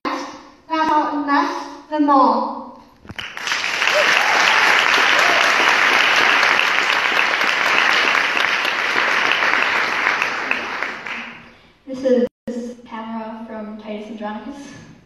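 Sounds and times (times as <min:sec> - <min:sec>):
audience applauding: 0:03.1 - 0:11.5.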